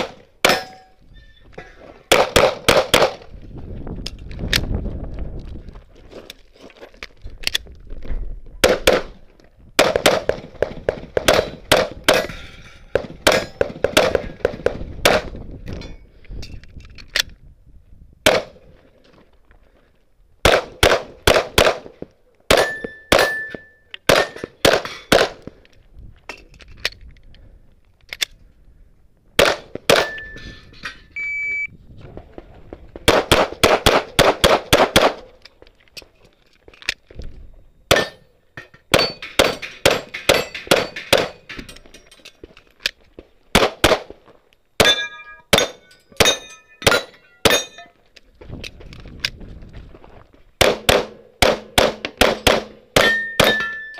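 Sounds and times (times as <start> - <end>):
steel target ringing: 22.6 - 24.5, 38.0 - 41.6, 44.8 - 48.0, 53.0 - 53.9.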